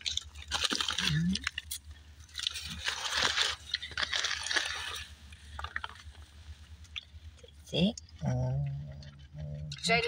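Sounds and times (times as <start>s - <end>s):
rustling: 0.0s - 7.5s.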